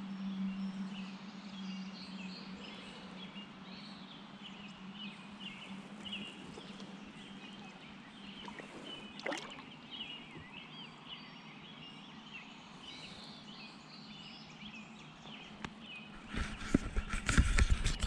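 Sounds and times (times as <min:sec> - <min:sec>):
birds chirping and warbling: 0:00.0 - 0:18.0
faint steady hum: 0:00.0 - 0:18.0.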